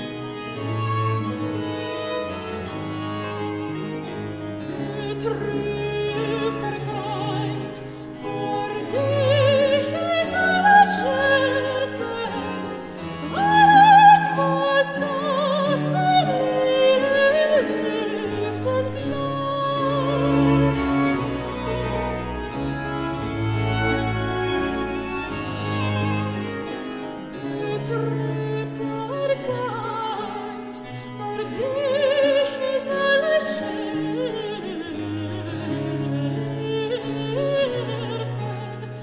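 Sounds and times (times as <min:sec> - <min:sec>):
strings and harpsichord orchestra: 0:00.0 - 0:39.0
soprano singing with vibrato: 0:04.7 - 0:22.5, 0:27.6 - 0:39.0.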